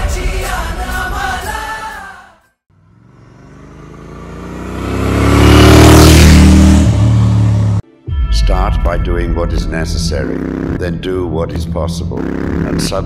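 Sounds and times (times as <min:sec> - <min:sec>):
music: 0:00.0 - 0:02.6, 0:07.8 - 0:13.0
motorcycle passing by: 0:02.8 - 0:07.8, 0:12.2 - 0:13.0.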